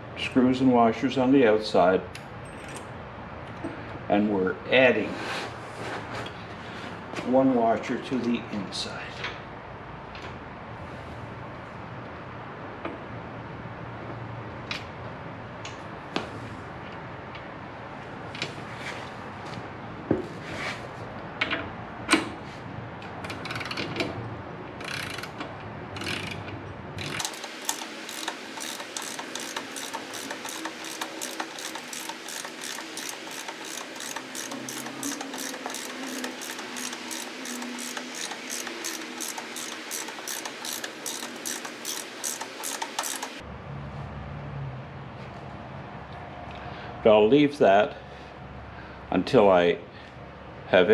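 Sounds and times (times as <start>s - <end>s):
ratchet wrench clicking: 24.8s - 25.4s, 26.0s - 43.4s
tool clatter: 27.0s - 43.4s.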